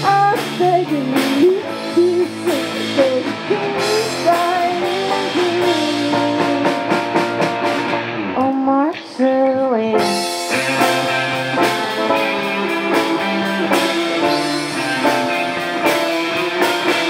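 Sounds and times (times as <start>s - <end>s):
woman singing: 0.0s - 7.1s, 8.4s - 10.9s
live rock band playing: 0.0s - 17.0s.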